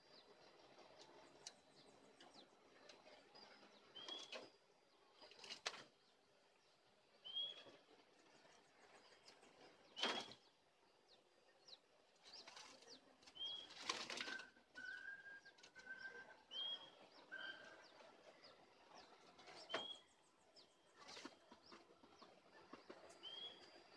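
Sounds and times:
doves flapping wings: 12.2 - 15.0, 21.0 - 23.9.

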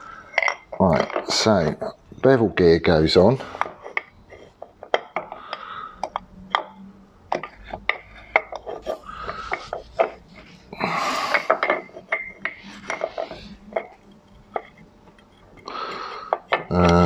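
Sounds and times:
metal scraping rub: 7.4 - 16.6
steel parts clinking together: 11.3 - 14.8.

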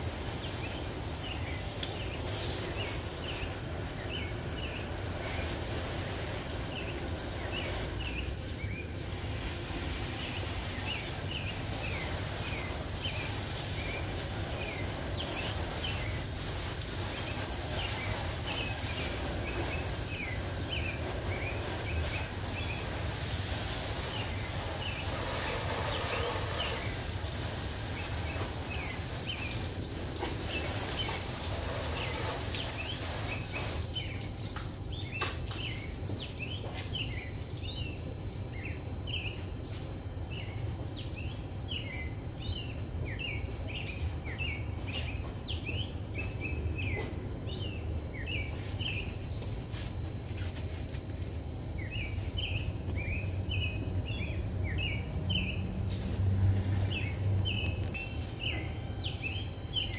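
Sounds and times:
small birds chirping: 0.0 - 59.9
hose nozzle spraying water: 1.4 - 35.7.

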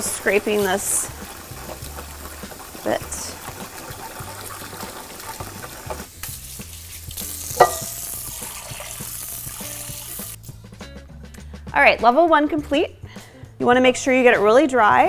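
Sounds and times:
scrubbing a cast iron skillet: 0.0 - 10.4.

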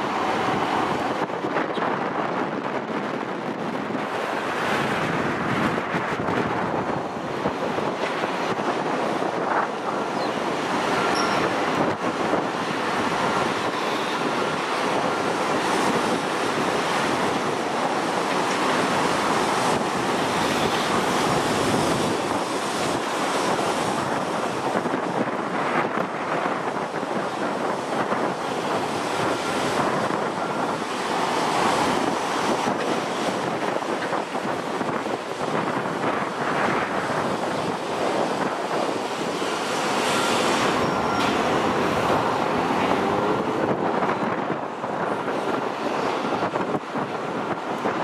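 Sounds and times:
jet engines roaring: 0.0 - 48.0
wind buffeting microphone: 0.0 - 48.0.

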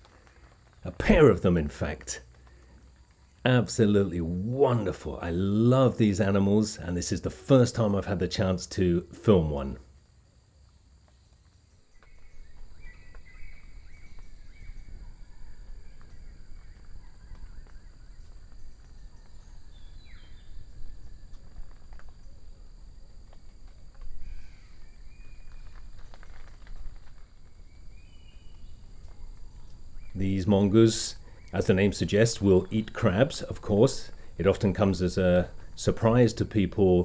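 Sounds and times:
soft clicks and rustles: 0.0 - 3.5, 9.9 - 30.2.

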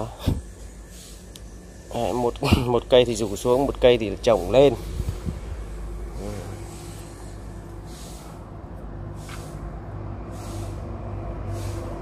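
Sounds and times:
low motor hum: 0.0 - 12.0
short hisses: 10.3 - 10.9.

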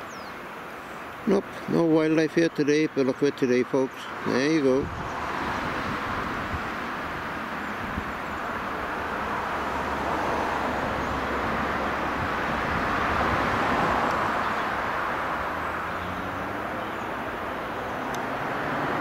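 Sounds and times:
river water rushing over rapids: 3.9 - 19.0.

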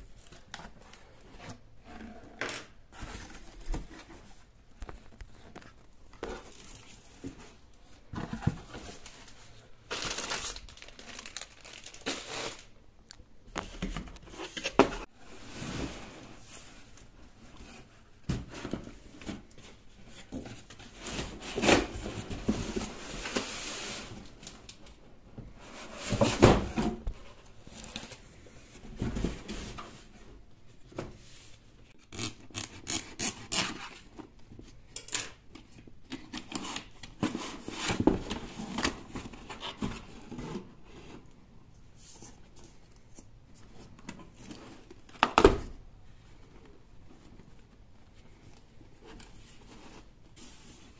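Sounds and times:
cardboard scraping and rustling: 13.6 - 24.6.

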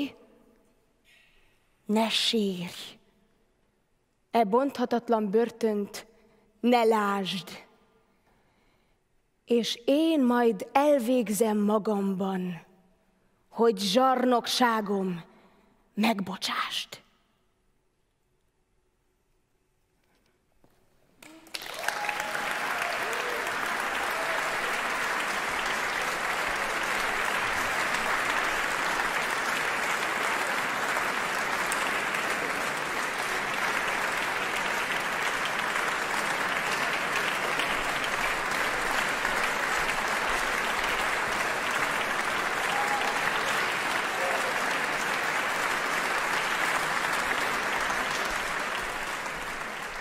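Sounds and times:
audience applauding: 21.2 - 50.0.

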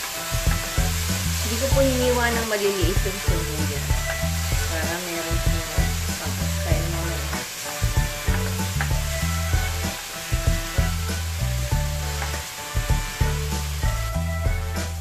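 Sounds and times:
spatula scraping pan: 0.0 - 14.0
background music with bass: 0.0 - 15.0
food sizzling in oil: 0.0 - 15.0.

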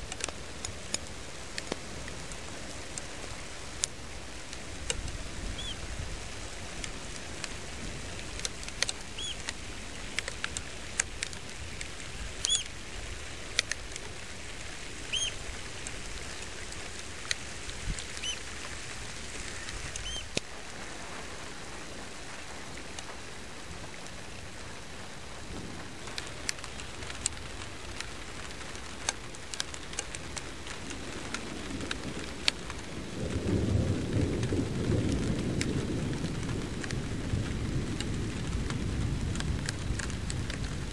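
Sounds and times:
wind and rain: 0.0 - 40.9
bird chirping: 5.6 - 5.8, 9.1 - 9.5, 12.4 - 12.7, 15.0 - 15.4, 18.2 - 18.4, 19.6 - 20.4
sharp clicks: 8.2 - 12.7, 13.5 - 14.1
low thunder rumble: 31.0 - 40.9.

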